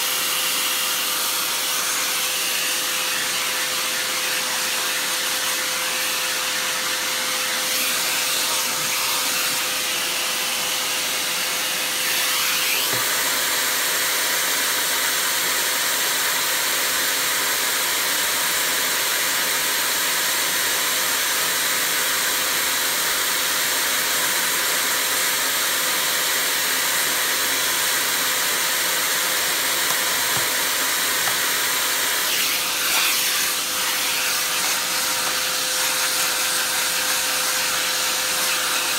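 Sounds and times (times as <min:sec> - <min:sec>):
vacuum cleaner running: 0:00.0 - 0:38.9.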